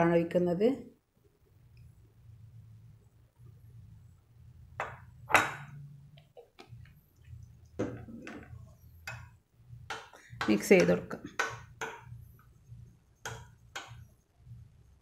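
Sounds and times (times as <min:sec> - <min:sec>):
faint low hum: 0:00.0 - 0:15.0
kitchenware clinking: 0:04.8 - 0:05.8.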